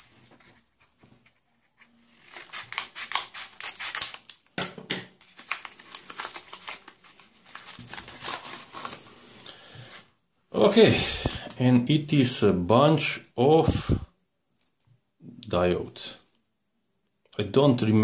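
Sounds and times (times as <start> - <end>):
paper crinkling and rustling: 0.0 - 4.5, 5.2 - 9.2.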